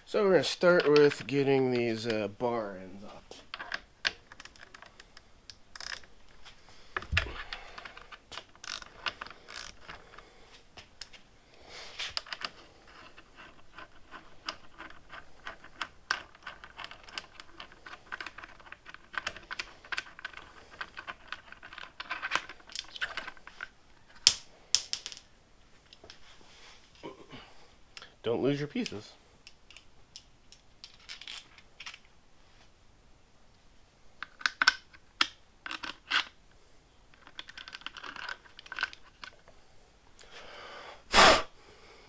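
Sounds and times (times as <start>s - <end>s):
metal pieces clinking: 13.7s - 25.3s, 29.7s - 32.1s.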